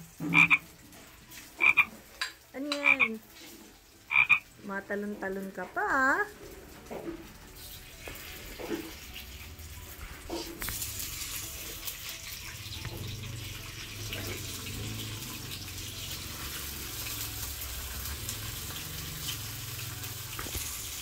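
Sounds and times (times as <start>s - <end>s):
meat sizzling in frying pan: 6.2s - 21.0s.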